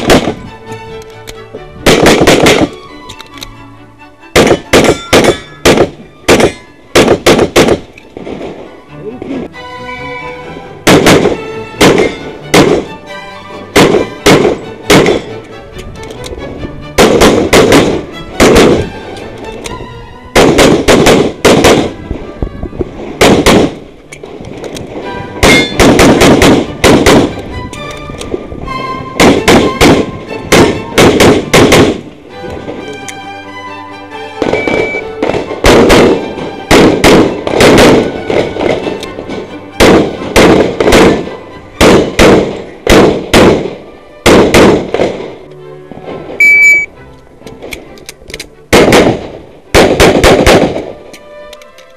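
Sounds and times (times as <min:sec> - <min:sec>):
pistol shots: 0:00.0 - 0:00.4, 0:01.8 - 0:02.7, 0:04.4 - 0:07.9, 0:10.9 - 0:12.9, 0:13.8 - 0:15.3, 0:17.0 - 0:18.9, 0:20.4 - 0:22.0, 0:23.2 - 0:23.8, 0:25.4 - 0:27.4, 0:29.2 - 0:32.0, 0:34.5 - 0:38.9, 0:39.8 - 0:41.2, 0:41.8 - 0:45.3, 0:48.7 - 0:50.9
background music: 0:00.0 - 0:51.9.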